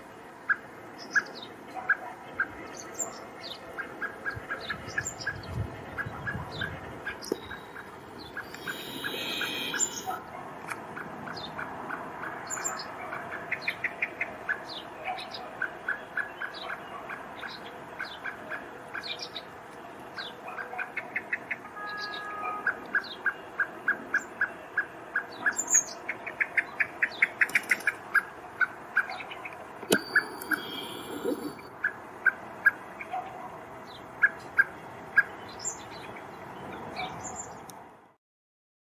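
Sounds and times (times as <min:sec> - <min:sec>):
blackbird alarm call: 0:00.5 - 0:10.2, 0:20.2 - 0:32.0
thin high bird chirps: 0:07.2 - 0:10.2.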